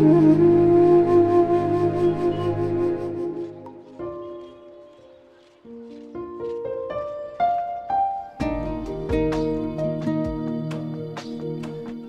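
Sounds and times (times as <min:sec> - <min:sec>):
flute-like melody: 0:00.0 - 0:12.0.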